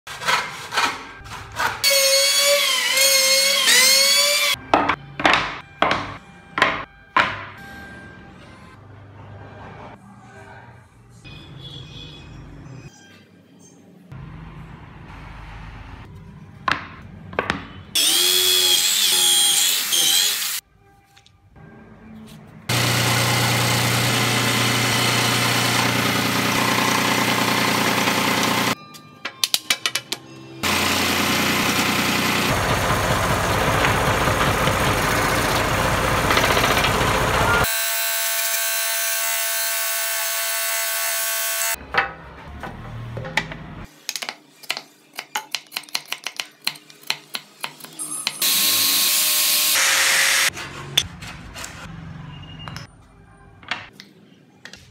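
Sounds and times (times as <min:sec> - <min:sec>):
power tools cutting wood: 0:01.8 - 0:04.6, 0:18.0 - 0:20.6, 0:22.7 - 0:28.8, 0:30.6 - 0:41.8, 0:48.0 - 0:50.6
chisel paring wood: 0:04.8 - 0:07.4.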